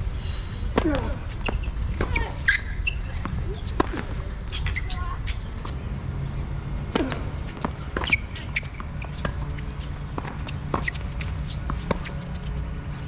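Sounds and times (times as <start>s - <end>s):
shoe squeaks: 0.3s - 5.7s, 7.0s - 13.0s
racket hitting tennis ball: 0.7s - 4.9s, 6.8s - 12.6s.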